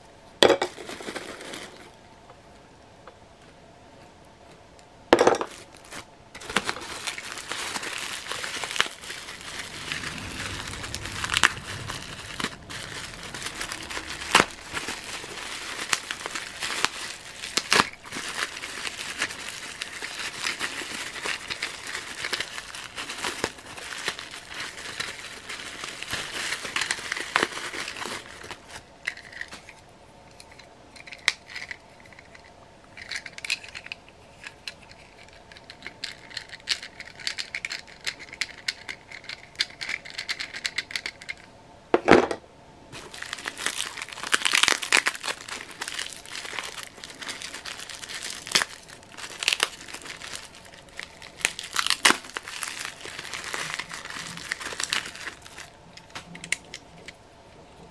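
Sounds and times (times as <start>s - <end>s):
plastic wrap crinkling: 5.5s - 28.8s, 43.0s - 56.4s.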